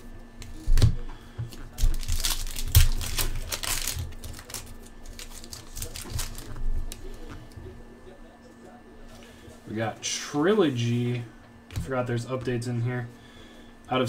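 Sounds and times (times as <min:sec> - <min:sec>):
foil wrapper crinkling and tearing: 0:01.5 - 0:07.3.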